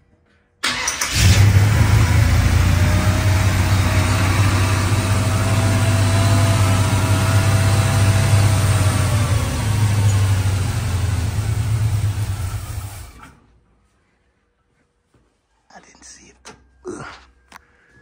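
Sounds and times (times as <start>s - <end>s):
engine cranking and starting: 0.6s - 13.4s
engine fast idling: 0.7s - 13.3s.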